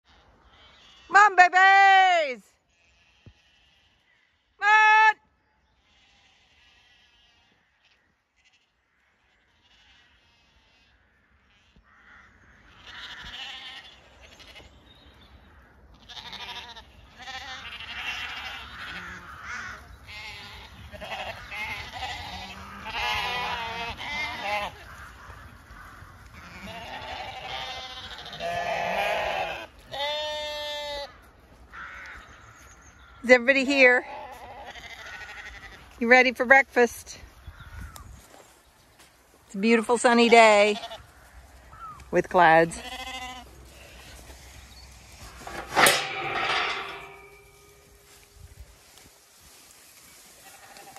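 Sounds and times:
sheep and lambs bleating: 0.1 - 36.8, 39.6 - 48.2, 49.6 - 50.9.

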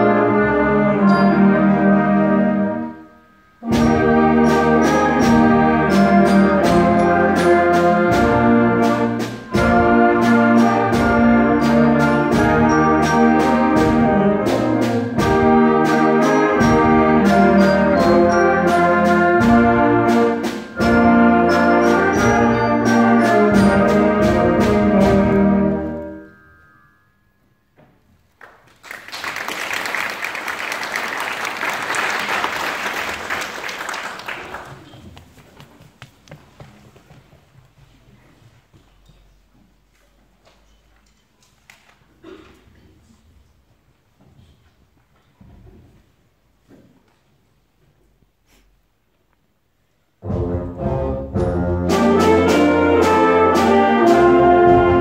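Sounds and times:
wind band playing: 0.0 - 26.4, 50.2 - 55.0
audience applauding: 28.4 - 36.2.

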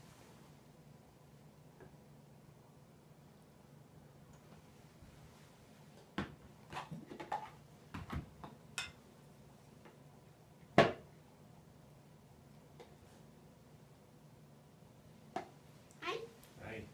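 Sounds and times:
tableware clicking and knocking: 8.4 - 9.0.

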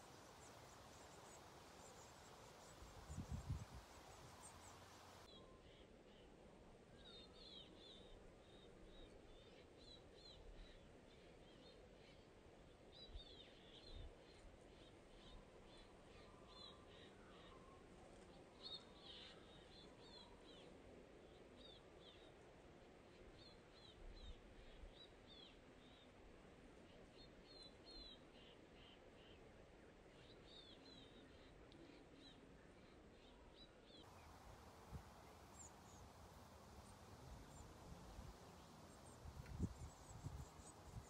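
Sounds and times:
songbirds chirping: 0.0 - 5.5, 30.0 - 41.0
outdoor background noise: 0.0 - 41.0.

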